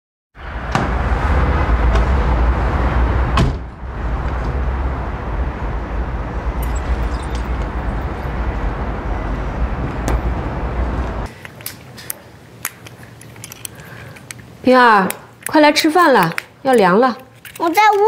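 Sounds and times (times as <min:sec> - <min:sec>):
low vehicle rumble: 0:00.4 - 0:11.3
car door shutting: 0:03.4 - 0:03.7.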